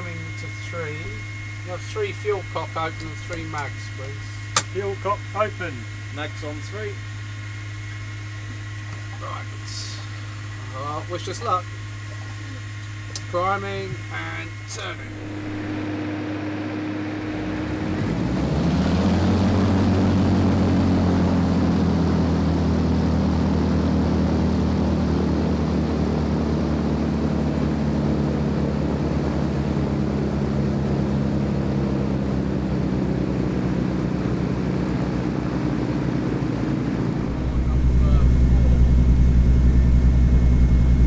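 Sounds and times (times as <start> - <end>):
aircraft engine starting up: 0.0 - 11.3, 11.9 - 41.0.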